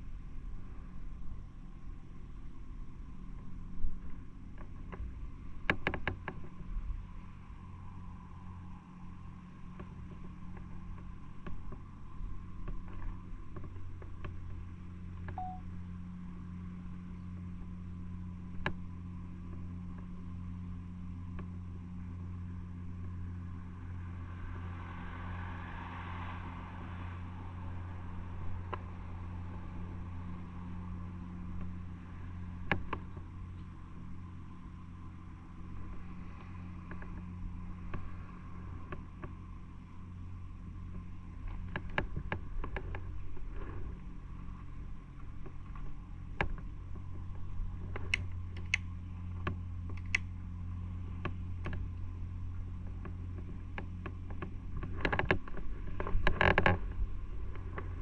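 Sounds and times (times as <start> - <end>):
short beep: 15.4 - 15.7
light clicks: 47.8 - 50.3.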